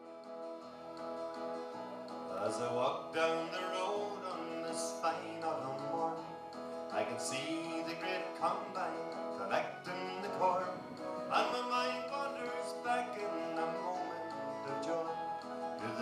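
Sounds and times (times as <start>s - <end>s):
folk-country acoustic guitar music: 0.0s - 16.0s.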